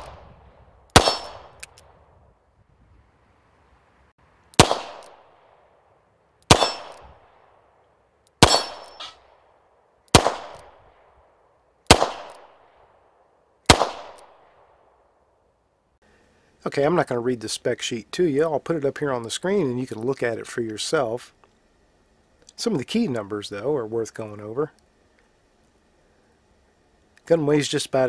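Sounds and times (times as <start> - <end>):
revolver gunshots: 0.0 - 1.8, 4.6 - 5.6, 6.5 - 7.6, 8.4 - 9.4, 10.1 - 11.1, 11.9 - 12.9, 13.7 - 14.9.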